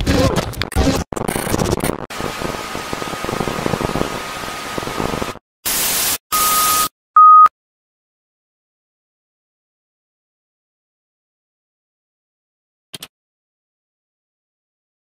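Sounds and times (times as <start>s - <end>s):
tv static hiss: 1.2s - 5.4s
loud test-tone beep: 6.3s - 7.5s.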